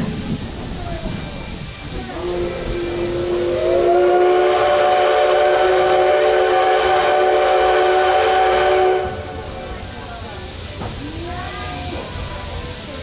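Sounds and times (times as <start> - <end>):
steam locomotive whistle: 2.1 - 9.7.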